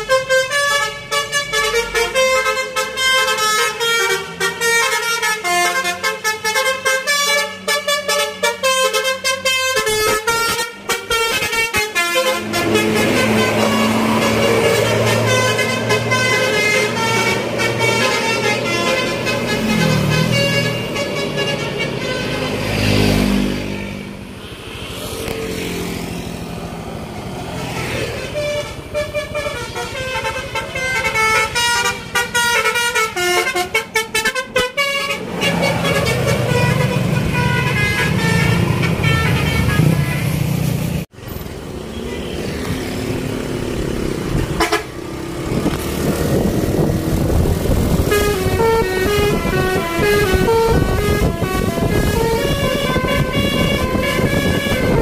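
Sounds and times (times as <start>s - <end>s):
bus diesel engine: 0.0s - 55.0s
musical air horn tunes: 44.6s - 44.9s, 48.0s - 55.0s.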